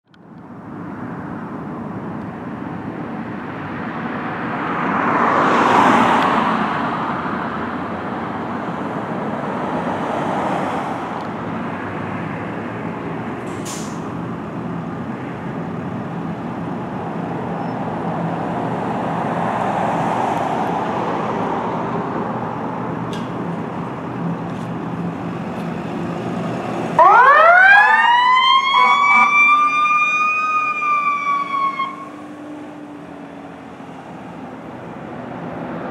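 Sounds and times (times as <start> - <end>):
passing traffic: 0.1 - 35.9
vehicle passing loudly: 3.4 - 13.4, 16.6 - 35.9
siren wailing: 27.0 - 32.9.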